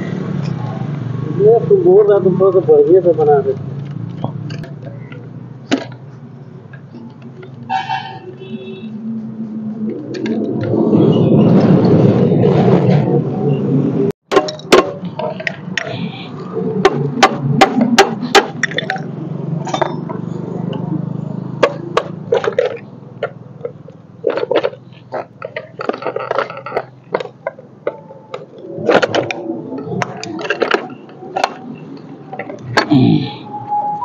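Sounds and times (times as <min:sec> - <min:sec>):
hand tools clinking on metal: 0:18.2 - 0:20.2.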